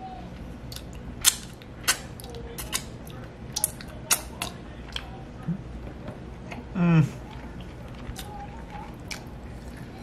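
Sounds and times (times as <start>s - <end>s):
person chewing with lip smacks: 7.2s - 10.0s.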